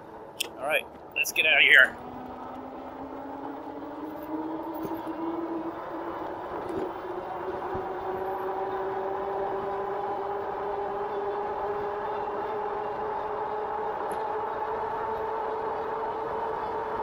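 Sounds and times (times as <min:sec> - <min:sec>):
electric bike motor whining: 0:02.0 - 0:17.0.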